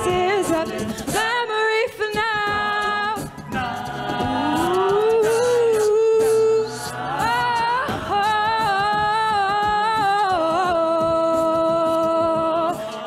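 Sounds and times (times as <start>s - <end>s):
vocal percussion beat: 0.0s - 13.0s
sustained backing voices: 3.4s - 8.5s
woman singing long wordless notes: 4.2s - 12.8s.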